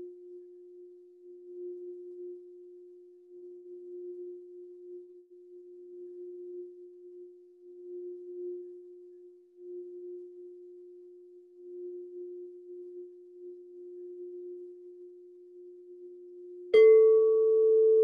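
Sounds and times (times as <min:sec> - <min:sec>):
singing bowl humming: 0:00.0 - 0:18.0.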